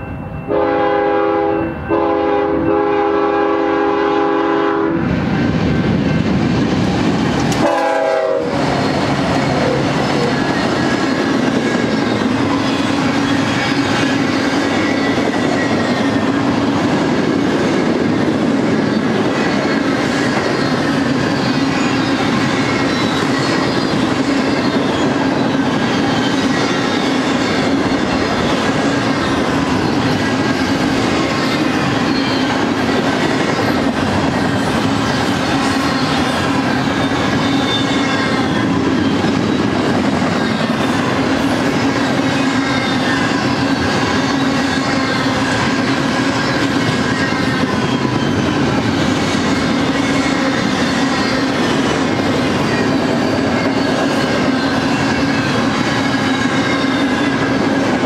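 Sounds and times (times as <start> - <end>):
steel wheels on rail: 0.0 - 58.0
locomotive air horn: 0.5 - 5.0, 7.6 - 8.6.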